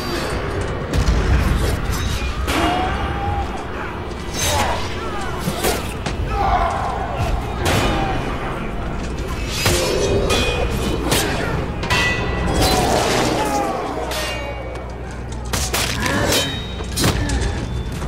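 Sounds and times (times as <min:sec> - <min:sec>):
film music score: 0:00.0 - 0:18.0
men shouting: 0:02.5 - 0:09.0.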